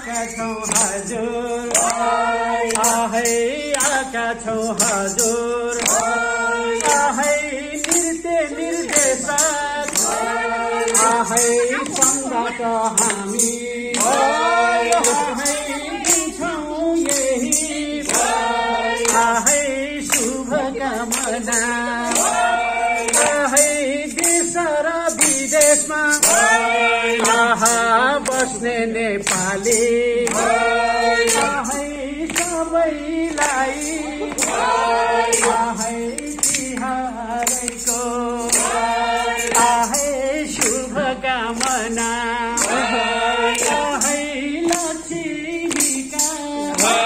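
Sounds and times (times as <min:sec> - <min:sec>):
music with steady beat: 0:00.0 - 0:47.0
other voices singing: 0:00.0 - 0:47.0
man singing into microphone: 0:10.9 - 0:18.1, 0:23.0 - 0:30.4, 0:39.5 - 0:47.0.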